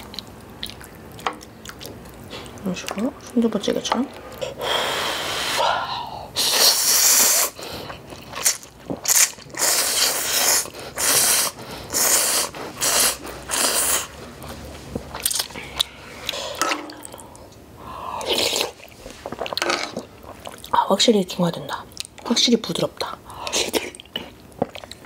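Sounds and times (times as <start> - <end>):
person slurping noodles: 4.4 - 14.2, 18.0 - 20.0.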